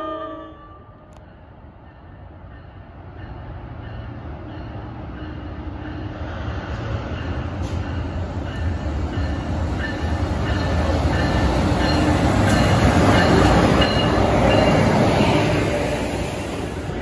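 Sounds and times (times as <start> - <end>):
diesel locomotive engine rumble: 0.7 - 17.0
train wheel noise: 1.1 - 17.0.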